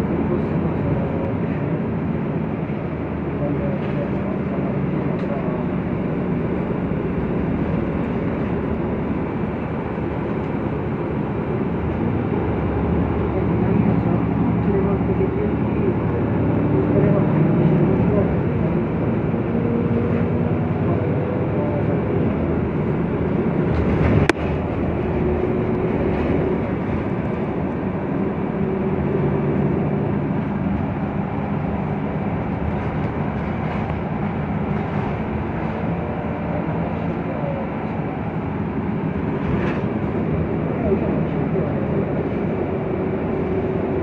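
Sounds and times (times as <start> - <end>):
bus engine hum: 0.0 - 44.0
road and tyre noise: 0.0 - 44.0.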